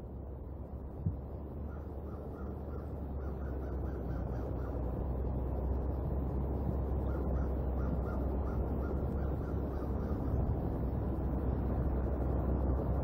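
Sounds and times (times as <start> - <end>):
rain and wind on microphone: 0.0 - 13.0
crows cawing: 1.7 - 4.8, 7.0 - 10.4.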